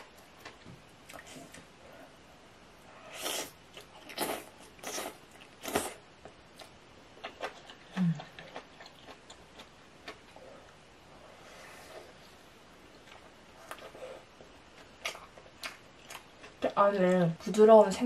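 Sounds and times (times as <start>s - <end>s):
wet chewing: 6.6s - 10.8s, 14.7s - 17.2s.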